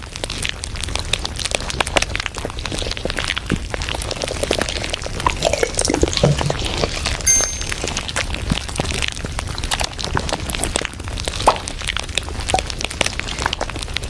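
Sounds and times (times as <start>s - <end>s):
short high tone: 7.3s - 8.0s.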